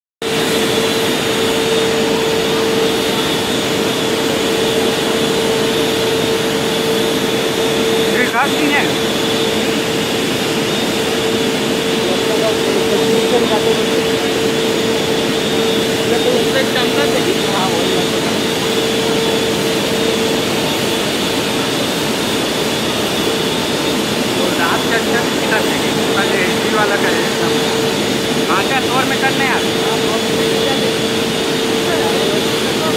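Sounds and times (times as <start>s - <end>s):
constant humming tone: 0.2s - 32.9s
loud industrial roar: 0.2s - 32.9s.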